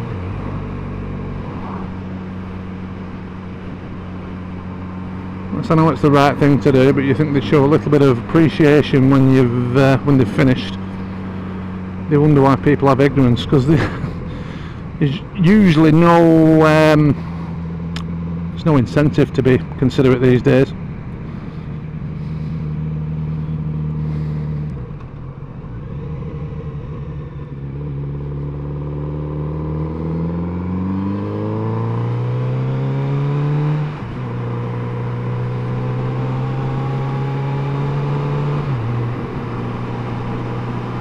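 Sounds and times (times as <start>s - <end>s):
motorcycle engine: 0.0s - 41.0s
road noise: 0.0s - 41.0s.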